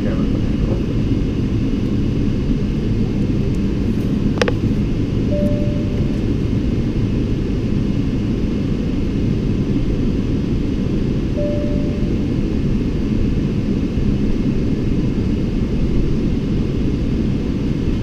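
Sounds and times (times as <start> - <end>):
aircraft cabin engine rumble: 0.0 - 18.0
brief steady tone: 5.3 - 6.4, 11.4 - 12.7.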